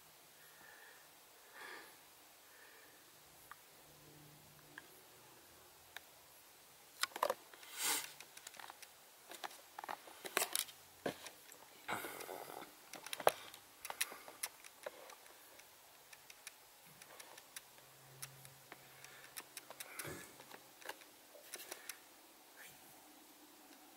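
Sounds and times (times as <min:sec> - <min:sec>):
squirrel gnawing fabric: 0:11.3 - 0:22.0.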